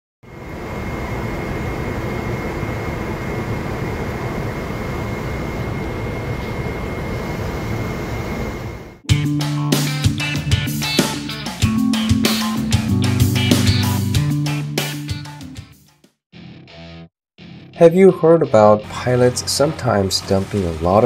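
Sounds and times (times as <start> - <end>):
jet airliner roar overhead: 0.2 - 9.0
faint high whine: 0.3 - 9.0
music with guitar and drums: 9.1 - 19.0.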